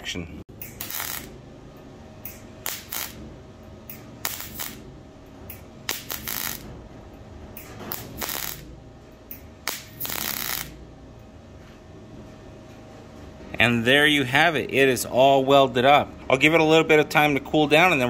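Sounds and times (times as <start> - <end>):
welder arc crackles: 0.6 - 1.4, 2.3 - 3.2, 3.9 - 4.8, 5.5 - 6.7, 7.8 - 8.7, 9.3 - 10.8.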